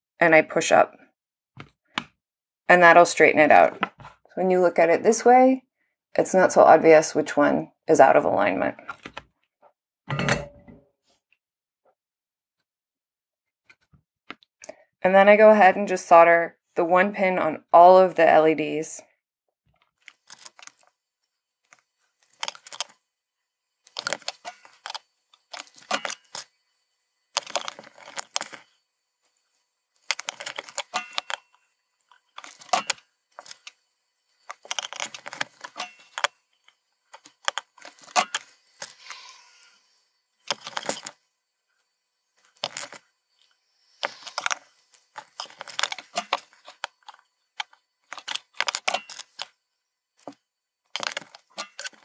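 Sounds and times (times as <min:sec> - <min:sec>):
small plastic parts clicking: 0:21.6 - 0:23.0, 0:23.8 - 0:26.5, 0:27.3 - 0:28.6, 0:30.0 - 0:33.8, 0:34.5 - 0:38.9, 0:40.4 - 0:41.2, 0:42.4 - 0:43.0, 0:44.0 - 0:49.5, 0:50.2 - 0:52.0.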